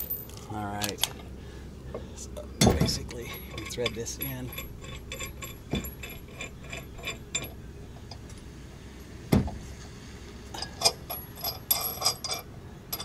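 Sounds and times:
sharp metallic clinks: 0.0s - 1.1s, 2.6s - 7.6s
light metal clicks and scrapes: 2.7s - 8.5s, 9.8s - 13.0s.

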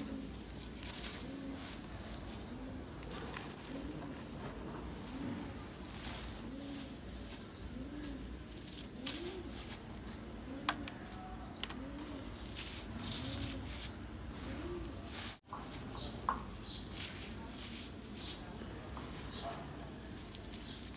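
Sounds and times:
dove cooing: 0.0s - 15.4s.

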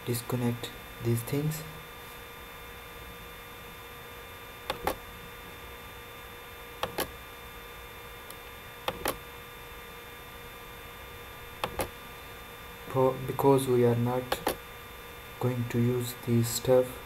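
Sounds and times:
electrical hum: 0.0s - 17.0s
computer mouse clicking: 4.7s - 5.0s, 6.8s - 7.1s, 8.9s - 9.2s, 11.6s - 11.9s.

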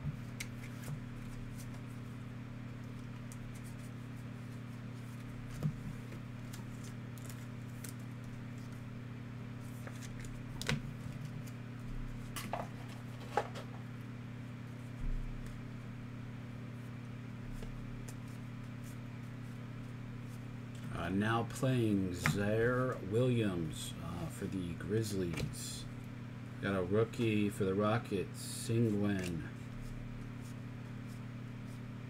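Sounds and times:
steady low hum: 0.0s - 32.0s
cards clicking and rustling: 6.4s - 8.8s, 28.9s - 29.5s.

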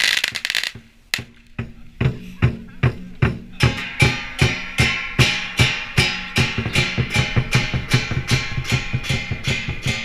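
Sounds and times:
drum beating: 0.0s - 10.0s
cymbal crashes: 3.6s - 10.0s.

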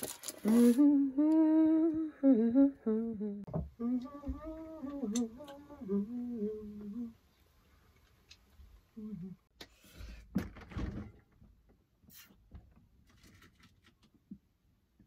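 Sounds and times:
woman humming: 0.4s - 7.2s, 9.0s - 9.5s.

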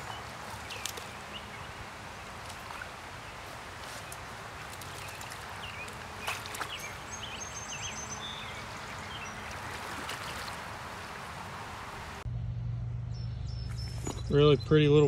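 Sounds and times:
short sharp splashes: 0.0s - 1.4s, 2.0s - 7.2s, 9.4s - 11.4s
small birds chirping: 0.0s - 11.2s
stream water flowing: 0.0s - 12.2s
low steady hum: 3.8s - 14.7s.

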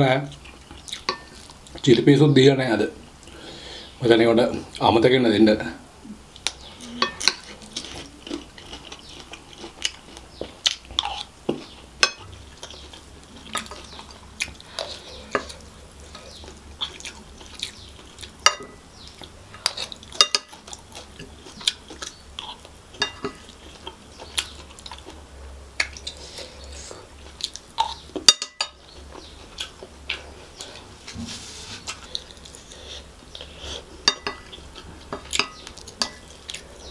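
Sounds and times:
chewing: 6.3s - 25.2s, 25.8s - 30.9s, 31.8s - 36.9s
wooden spoon scraping a plate: 31.1s - 32.0s.

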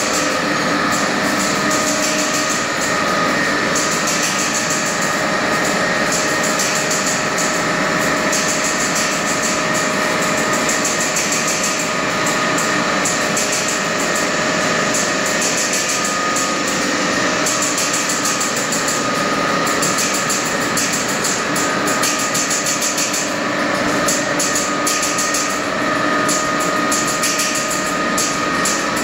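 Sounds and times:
fast even machine rattle: 0.0s - 29.0s
machinery humming: 0.0s - 29.0s.

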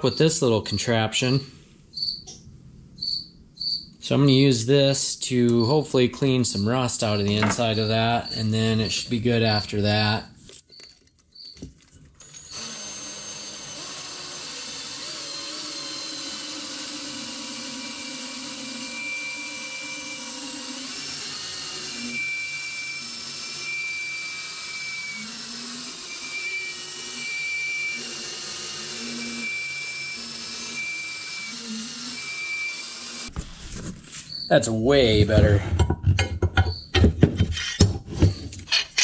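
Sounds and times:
power drill running: 12.2s - 33.3s
high tone of tool scouring metal: 38.6s - 39.0s.

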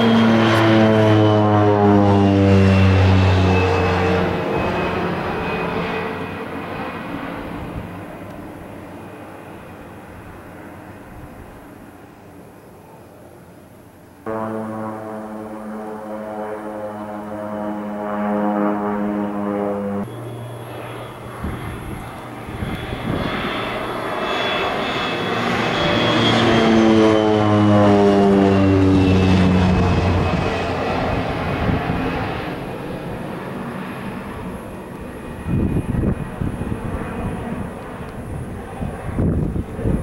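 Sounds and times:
high turbine whine: 0.0s - 40.0s
propeller drone: 0.0s - 40.0s.

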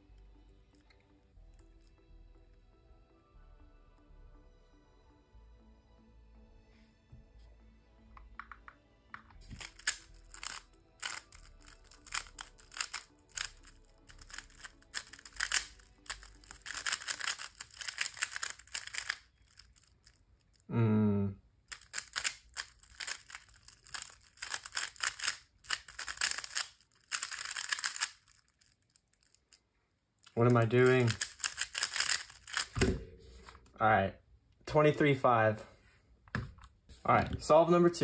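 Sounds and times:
speed cube clicking: 9.5s - 20.6s, 21.7s - 29.4s, 30.2s - 32.8s.

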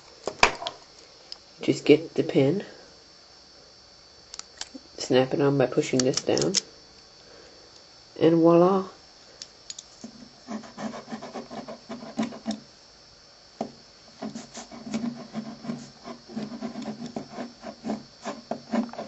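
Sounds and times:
pen scribbling on paper: 10.4s - 12.5s, 14.2s - 19.0s.

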